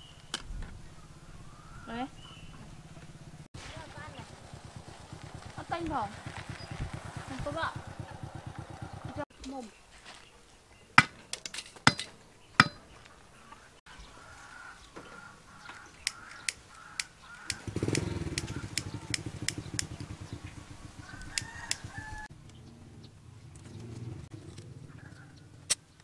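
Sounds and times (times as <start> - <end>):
low pulsing rumble: 0.7 - 9.2
chickens clucking: 12.6 - 22.3
sharp clicks: 16.0 - 20.2, 21.0 - 22.6.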